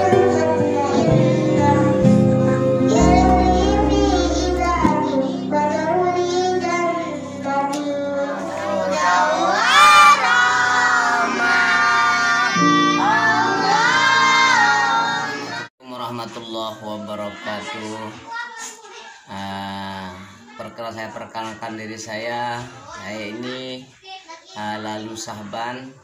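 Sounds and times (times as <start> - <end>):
instrumental backing music: 0.0 - 9.6, 11.5 - 15.7
child singing: 0.0 - 15.6
low steady bass note: 2.0 - 6.2.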